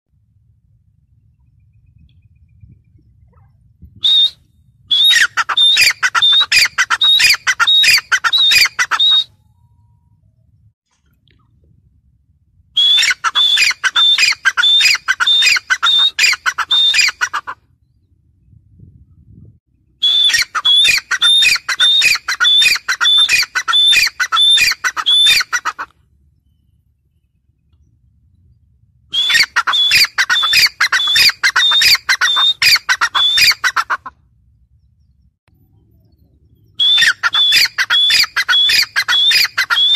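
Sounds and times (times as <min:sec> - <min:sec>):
francolin calling: 0:01.4 - 0:10.2, 0:20.0 - 0:27.0, 0:29.1 - 0:33.9, 0:36.4 - 0:39.9.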